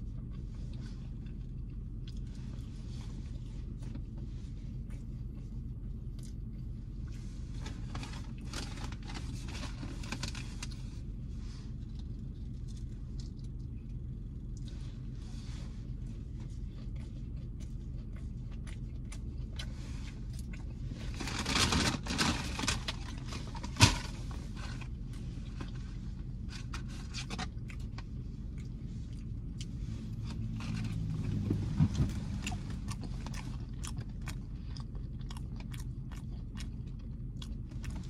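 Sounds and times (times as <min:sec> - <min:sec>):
low hum inside car: 0:00.0 - 0:38.0
chewing with small clicks: 0:00.2 - 0:02.5, 0:16.4 - 0:20.8, 0:27.4 - 0:30.4, 0:32.4 - 0:38.0.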